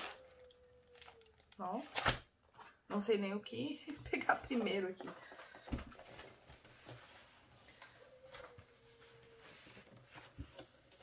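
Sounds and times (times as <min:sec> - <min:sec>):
packaging rustling: 0:00.0 - 0:02.3.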